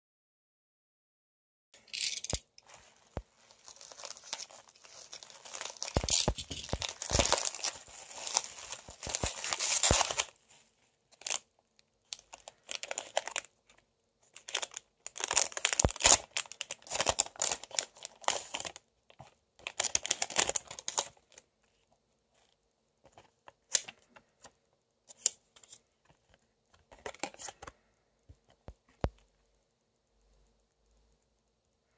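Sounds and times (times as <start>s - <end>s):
plastic packaging crinkling: 2.1s - 10.6s, 11.2s - 11.5s, 12.1s - 13.6s, 14.3s - 21.4s, 26.8s - 27.7s.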